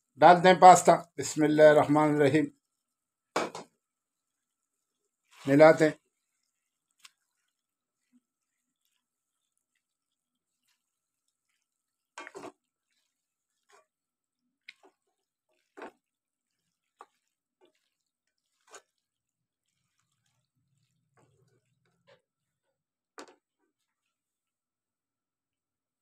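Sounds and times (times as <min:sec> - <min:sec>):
spatula scraping a pan: 0:04.2 - 0:22.7.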